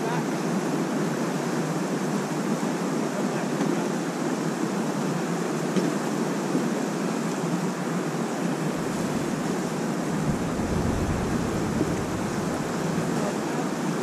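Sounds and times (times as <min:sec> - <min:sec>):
river water rushing: 0:00.0 - 0:14.0
low rumble: 0:08.7 - 0:13.1.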